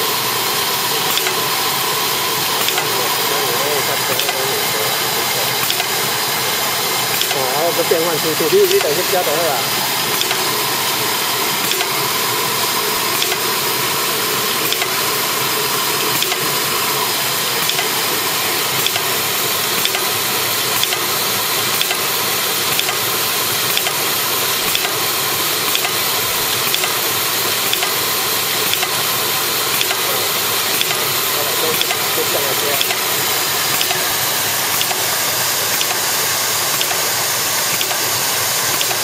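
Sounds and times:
machine whirring and hissing: 0.0s - 39.0s
faint machine ticks: 1.1s - 1.5s, 2.6s - 2.9s, 4.2s - 4.5s, 5.6s - 6.0s, 7.2s - 9.6s, 10.2s - 10.5s, 11.7s - 12.0s, 13.2s - 13.5s, 14.7s - 15.0s, 16.2s - 16.4s, 17.6s - 18.0s, 18.8s - 19.1s, 19.8s - 20.1s, 21.8s - 22.0s, 22.8s - 23.0s, 23.7s - 24.0s, 25.7s - 27.0s, 27.7s - 28.0s, 28.7s - 29.0s, 29.8s - 30.1s, 30.8s - 31.1s, 31.7s - 33.1s, 33.8s - 34.1s, 34.8s - 35.1s, 35.8s - 36.1s, 36.8s - 37.2s, 37.8s - 38.1s, 38.7s - 39.0s.

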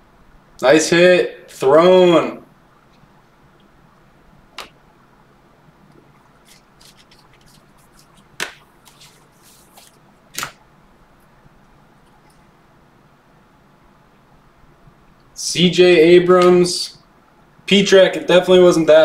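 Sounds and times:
card edges snapping: 6.4s - 10.6s
soft card flicks: 8.4s - 9.2s, 9.8s - 10.6s.

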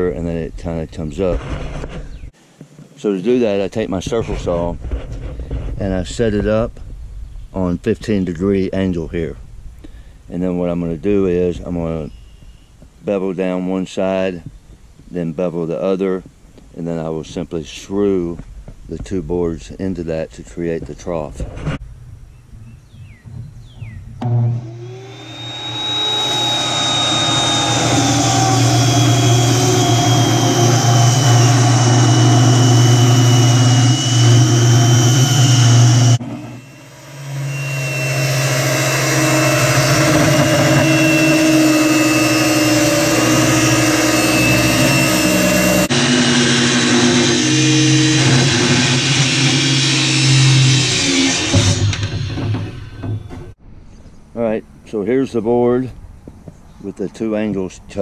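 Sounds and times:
circular saw cutting wood: 24.2s - 53.2s.

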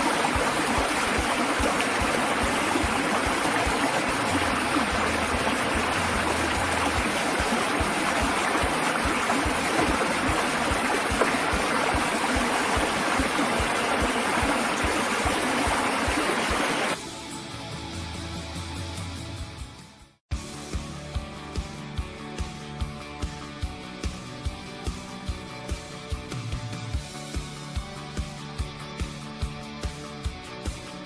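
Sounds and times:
low gurgling thuds: 0.0s - 17.0s
stream rushing over rocks: 0.0s - 17.0s.

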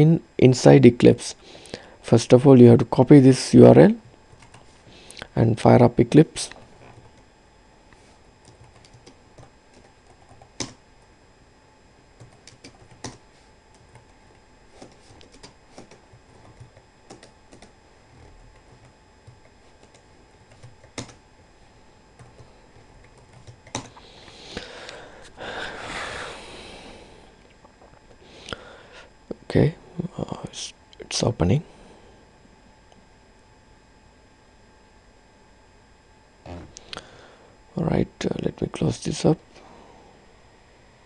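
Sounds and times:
keyboard typing clicks: 8.4s - 10.8s, 12.2s - 14.2s, 14.8s - 17.7s, 18.5s - 21.2s, 23.0s - 23.9s.

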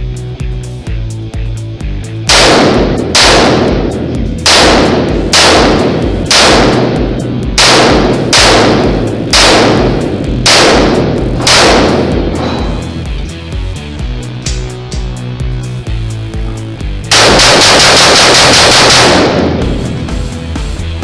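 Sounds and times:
rifle shots echoing: 2.3s - 12.6s, 17.1s - 19.8s.

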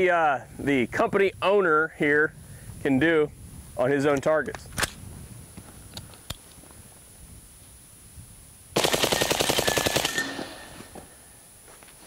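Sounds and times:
suppressed automatic gunfire burst: 8.8s - 10.8s.

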